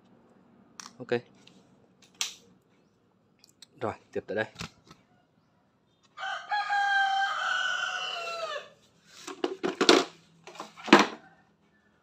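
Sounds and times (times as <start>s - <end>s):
rooster crowing: 6.2s - 8.8s
plastic tools knocking on tiled floor: 9.3s - 10.1s.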